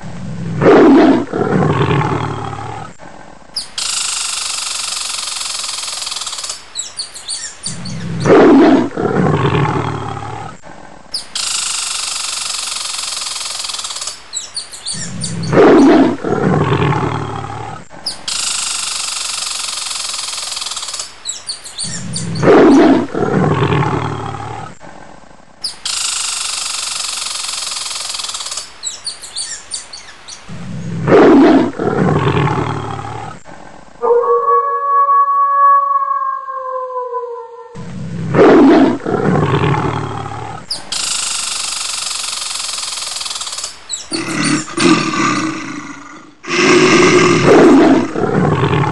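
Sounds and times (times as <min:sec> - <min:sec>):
lion roaring: 0:00.3 - 0:02.9, 0:08.0 - 0:10.6, 0:15.0 - 0:17.8, 0:22.0 - 0:24.7, 0:30.5 - 0:40.7, 0:44.1 - 0:48.9.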